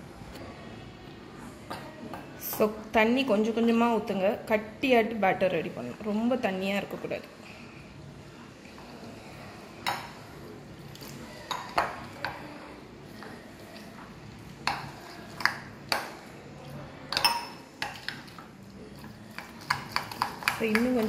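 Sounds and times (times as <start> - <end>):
spoon stirring batter: 5.6 - 21.0
spoon clinking against glass bowl: 17.1 - 18.2.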